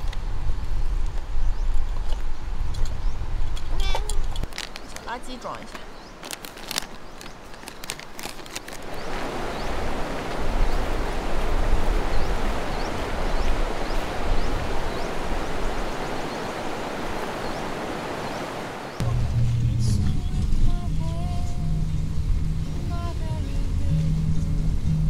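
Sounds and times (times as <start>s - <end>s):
sharp clicks and rustles: 3.5s - 8.9s
river water rushing over rapids: 4.6s - 24.8s.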